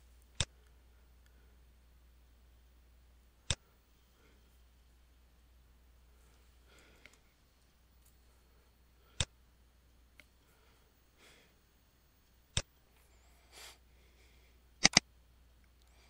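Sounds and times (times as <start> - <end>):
computer mouse clicking: 14.8 - 15.0.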